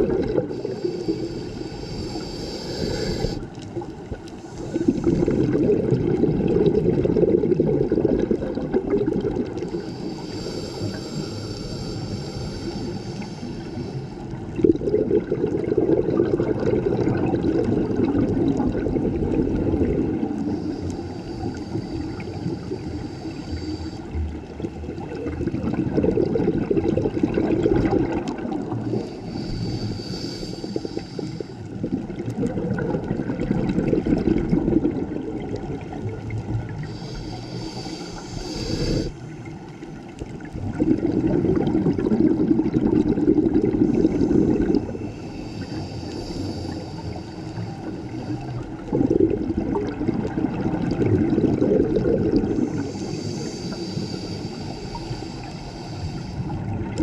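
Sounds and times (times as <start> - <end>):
exhaled bubbles burbling: 0.0 - 1.3, 2.8 - 11.1, 14.4 - 20.6, 24.3 - 29.2, 31.6 - 37.0, 38.4 - 46.0, 47.9 - 53.3, 56.5 - 57.0
regulator inhale hiss: 0.4 - 5.7, 9.5 - 14.6, 20.2 - 25.1, 28.7 - 31.8, 35.8 - 40.1, 43.7 - 48.9, 52.4 - 57.0.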